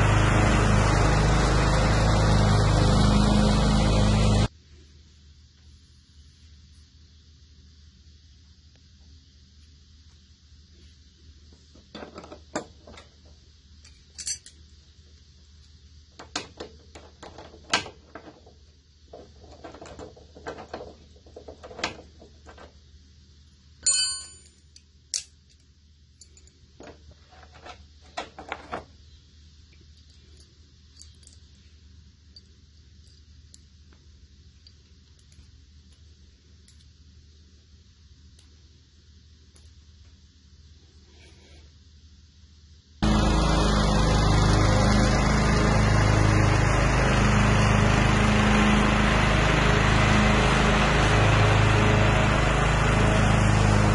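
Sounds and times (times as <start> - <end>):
faint steady hum: 4.5 - 43.1
ringing metal clink: 23.8 - 24.6
tools clanking on metal: 23.8 - 24.6.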